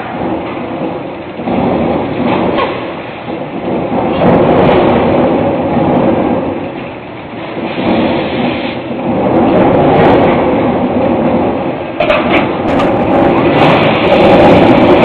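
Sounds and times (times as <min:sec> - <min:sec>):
forging press machinery noise: 0:00.0 - 0:15.0.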